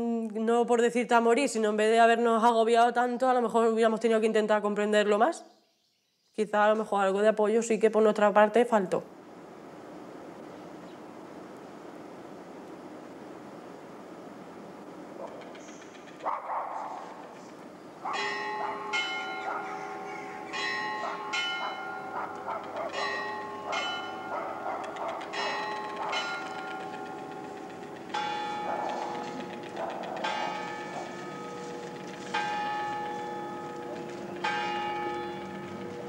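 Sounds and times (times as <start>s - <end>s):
church bells ringing: 17.0s - 36.0s.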